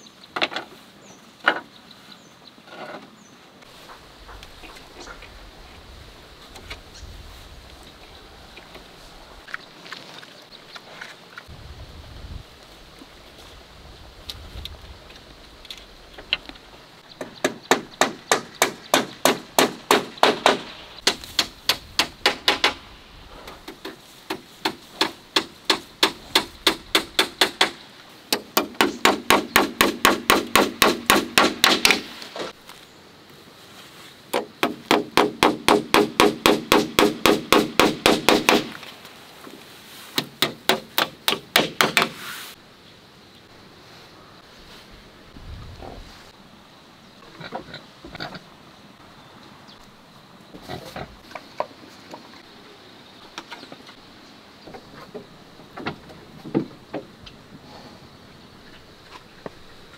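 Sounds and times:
hammer driving nails into wood: 17.2 - 22.8, 23.7 - 32.1, 34.4 - 38.8, 40.2 - 42.2.

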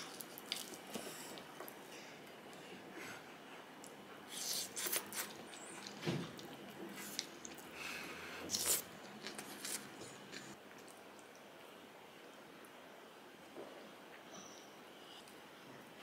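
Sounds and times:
soft chewing: 0.0 - 2.7, 3.5 - 11.5.

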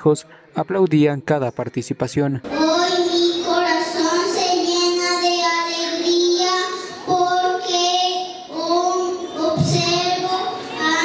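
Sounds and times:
girl singing into microphone: 2.5 - 11.0.

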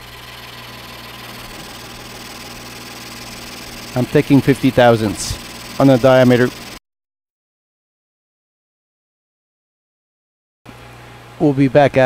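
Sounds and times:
metal lathe humming and hissing: 0.0 - 6.8.

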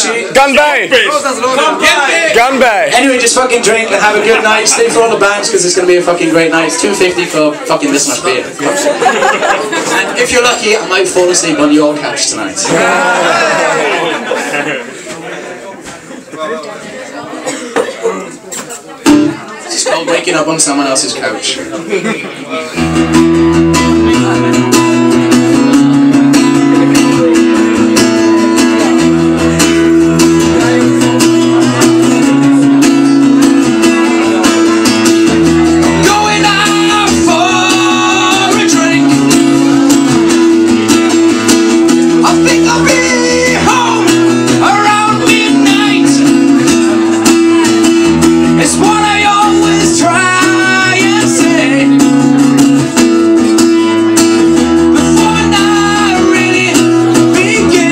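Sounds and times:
acoustic guitar strummed: 19.0 - 19.4, 22.7 - 57.9
man singing: 33.8 - 40.3, 42.1 - 47.8, 48.4 - 52.6, 53.7 - 57.9.

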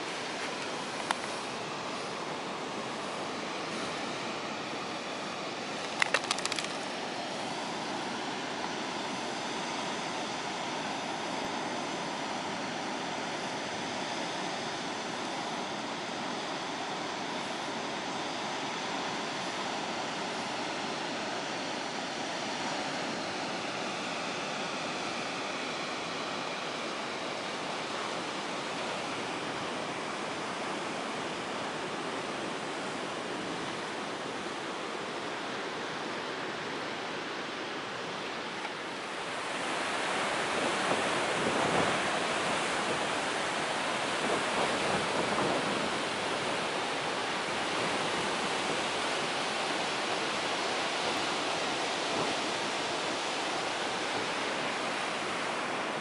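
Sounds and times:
sea surf: 0.0 - 56.0
wind on the shore: 0.0 - 56.0.

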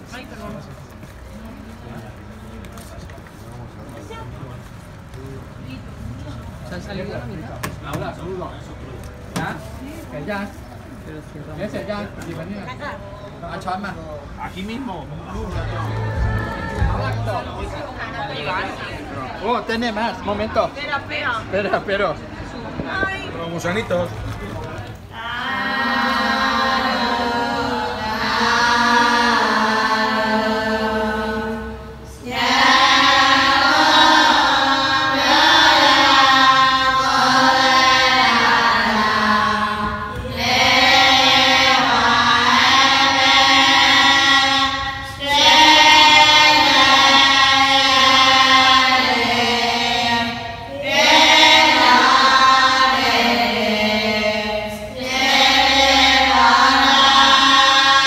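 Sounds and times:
group chanting: 25.1 - 58.0.

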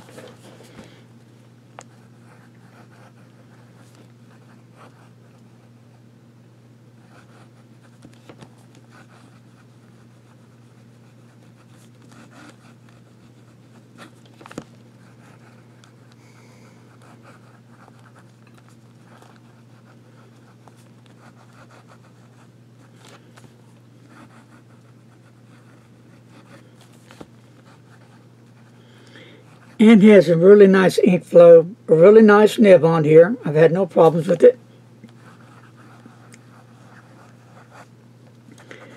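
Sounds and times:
steady low hum: 0.0 - 38.9
fountain pen scratching paper: 1.9 - 5.8, 7.0 - 16.1, 16.8 - 28.8, 29.5 - 29.8, 35.2 - 37.9.

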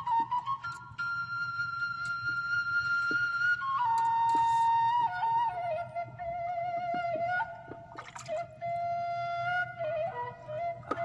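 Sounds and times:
flute-like melody with trills: 0.0 - 11.0.

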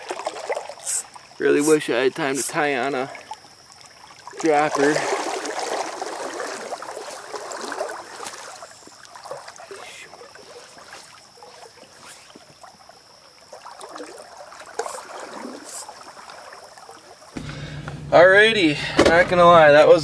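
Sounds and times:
creek water gurgling: 0.0 - 19.3
fishing line rustle: 0.8 - 2.6, 6.5 - 16.9.

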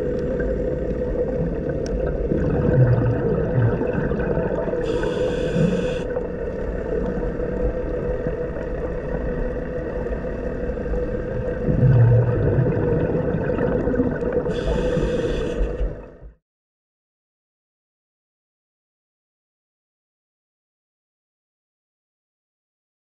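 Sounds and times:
regulator bubbles hissing: 0.0 - 16.3
underwater drone: 0.0 - 16.4.

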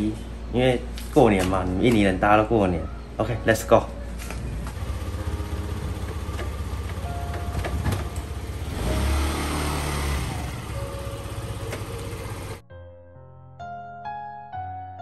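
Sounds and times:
scooter engine idling and revving: 4.6 - 12.6.

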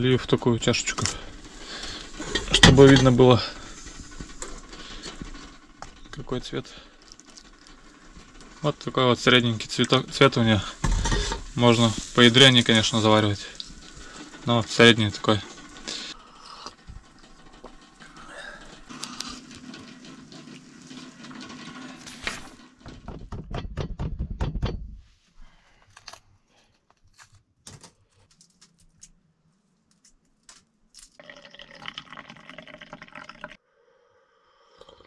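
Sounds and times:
tea slurped from a cup: 31.2 - 33.6, 34.6 - 35.0.

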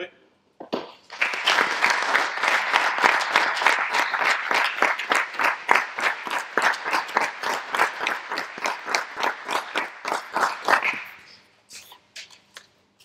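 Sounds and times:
audience applauding: 1.0 - 11.4.

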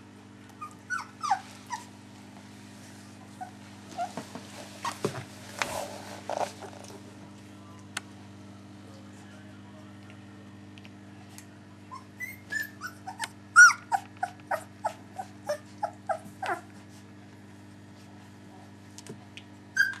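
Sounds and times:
puppy whimpering: 0.6 - 1.9, 3.3 - 4.2, 4.8 - 5.1, 11.9 - 16.7, 19.8 - 20.0.

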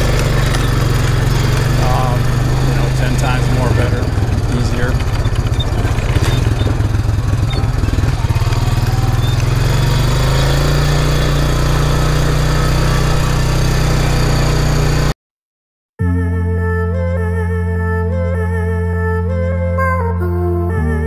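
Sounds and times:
quad engine running: 0.0 - 15.2.

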